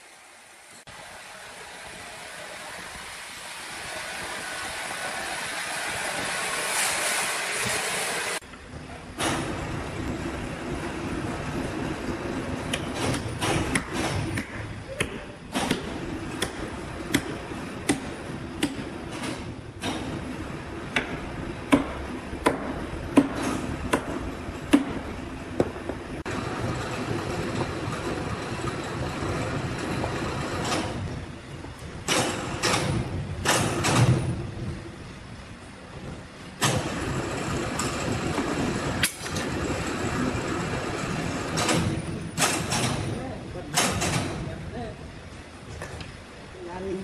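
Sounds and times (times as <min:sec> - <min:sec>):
machinery hum: 0:00.0 - 0:47.0
sharp knocks and clanks: 0:09.2 - 0:09.9, 0:12.0 - 0:31.2, 0:31.8 - 0:34.5, 0:36.6 - 0:44.6.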